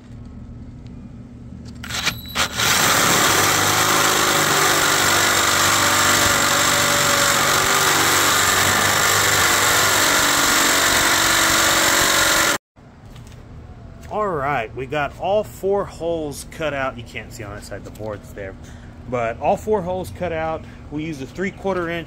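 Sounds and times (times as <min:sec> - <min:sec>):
drill grinding through steel: 0:01.8 - 0:12.6.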